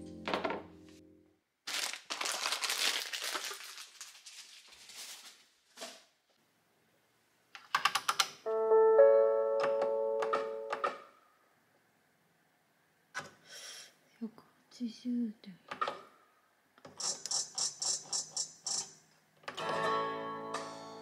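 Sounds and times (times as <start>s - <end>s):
gentle background music: 0.0s - 1.3s, 8.5s - 10.9s, 19.6s - 21.0s
crinkling handling noise: 1.6s - 6.1s.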